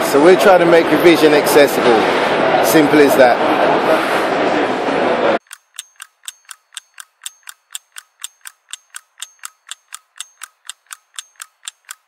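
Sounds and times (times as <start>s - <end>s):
clock ticking: 5.4s - 12.0s.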